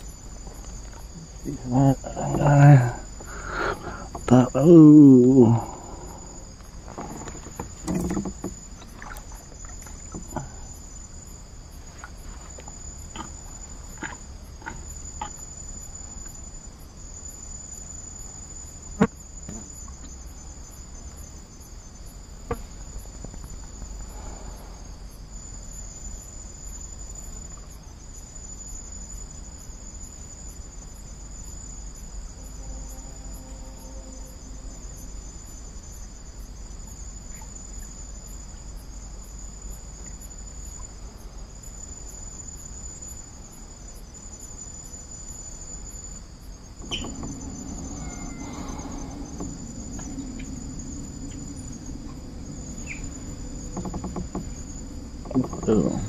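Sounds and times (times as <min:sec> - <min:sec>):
high-pitched insect chorus: 0:00.0 - 0:56.0
low rumble: 0:46.5 - 0:56.0.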